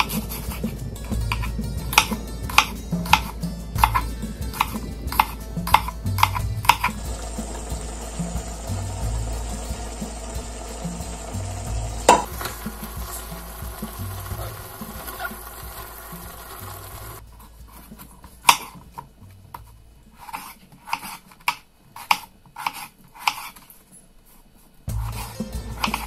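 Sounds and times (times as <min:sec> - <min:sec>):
steady hiss: 0:00.0 - 0:26.0
knife cutting potato on board: 0:19.6 - 0:23.6, 0:24.9 - 0:26.0.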